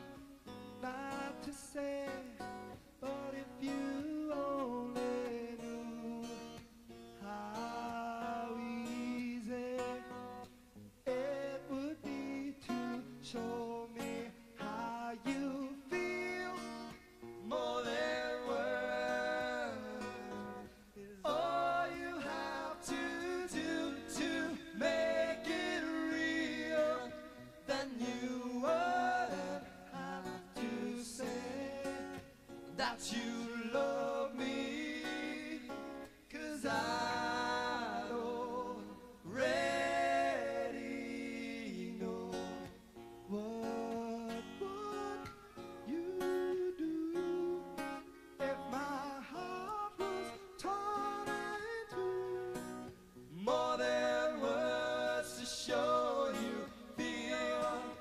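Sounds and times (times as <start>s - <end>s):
acoustic guitar: 0.0s - 58.0s
man singing a ballad: 0.0s - 58.0s.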